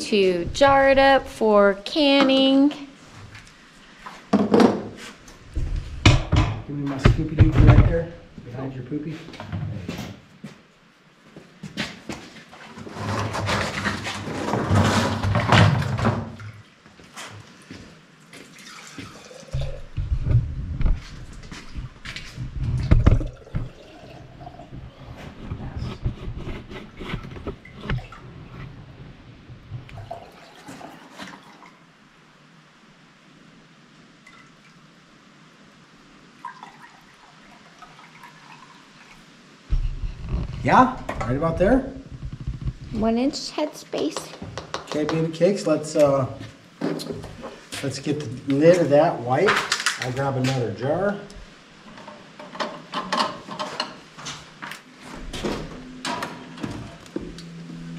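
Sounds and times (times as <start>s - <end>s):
broth pouring and dripping: 18.2s - 25.6s, 29.7s - 31.8s, 36.4s - 40.7s.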